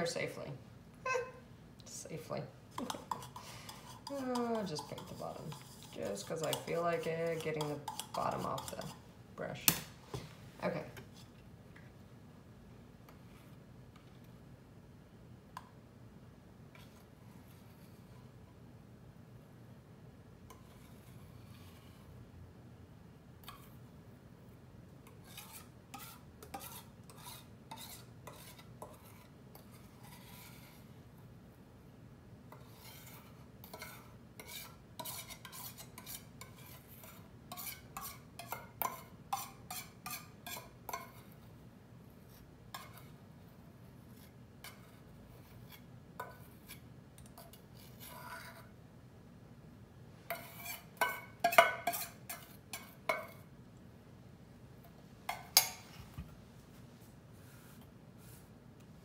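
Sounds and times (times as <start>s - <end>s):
metal spoon scraping metal bowl: 2.3s - 9.7s, 20.5s - 22.2s, 25.0s - 31.0s, 32.5s - 41.5s, 42.3s - 43.2s, 44.0s - 48.8s, 50.3s - 53.5s, 55.3s - 56.0s.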